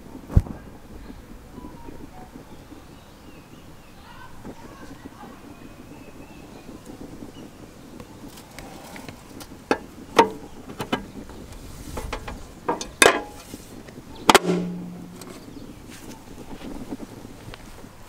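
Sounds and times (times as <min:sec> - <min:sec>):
clicks and knocks on metal: 0:09.7 - 0:11.1, 0:12.0 - 0:13.5.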